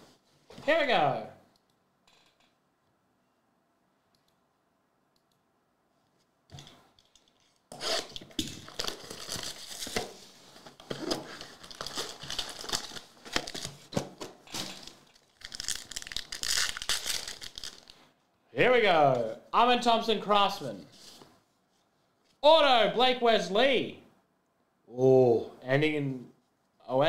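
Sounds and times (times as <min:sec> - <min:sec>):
plastic wrapping tearing and crinkling: 0:07.4 - 0:18.0.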